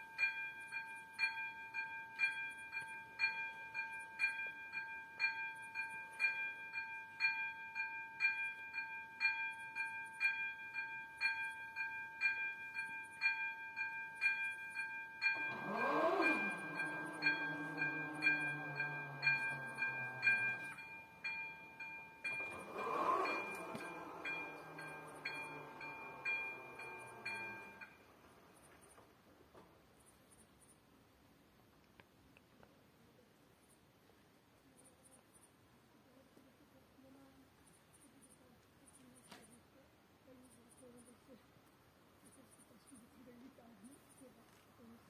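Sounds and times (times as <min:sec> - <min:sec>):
level crossing bell ringing: 0:00.0 - 0:28.2
barrier motor humming: 0:15.3 - 0:28.4.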